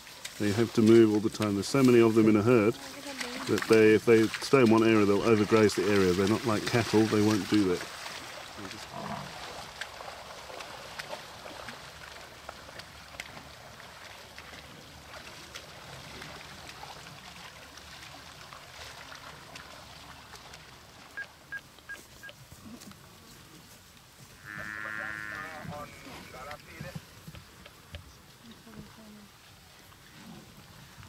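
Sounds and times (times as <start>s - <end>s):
buffalo bleating call: 24.4s - 26.6s.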